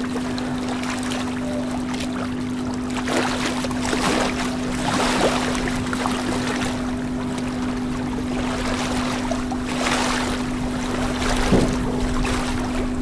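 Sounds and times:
aquarium air bubbling: 0:00.0 - 0:13.0
steady low hum: 0:00.0 - 0:13.0.

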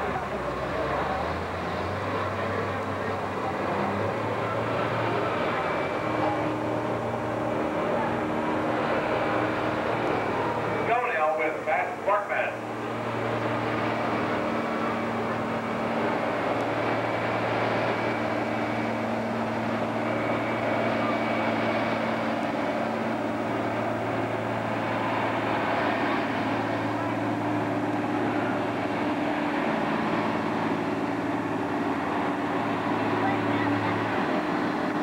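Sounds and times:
diesel tractor engine under load: 0:00.0 - 0:35.0.

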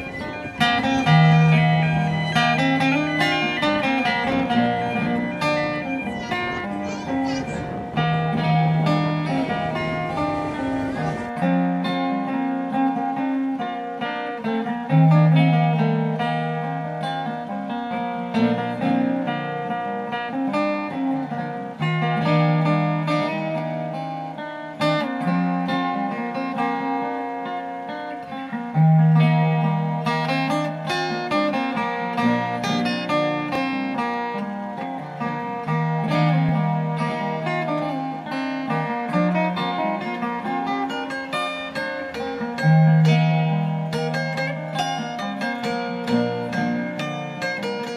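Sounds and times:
acoustic guitar plucking: 0:00.0 - 0:47.9
low noisy rumble: 0:04.4 - 0:11.4.

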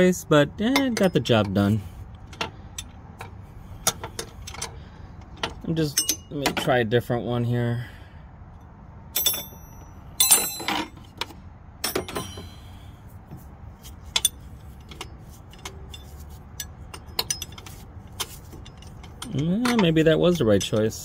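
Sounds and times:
metal hand tools clattering: 0:09.2 - 0:11.1, 0:11.8 - 0:12.6, 0:14.1 - 0:21.0.

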